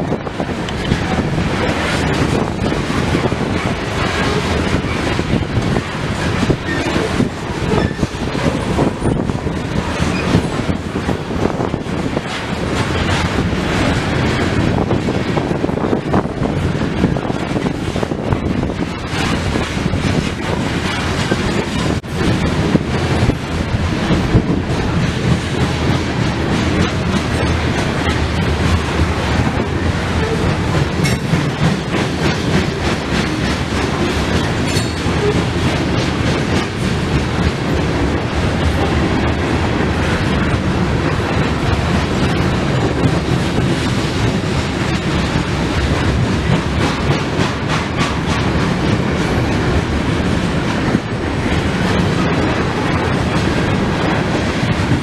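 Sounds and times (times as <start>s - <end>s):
train wheels rumbling on rails: 0.0s - 55.0s
wheels clacking over rail joints: 0.0s - 55.0s.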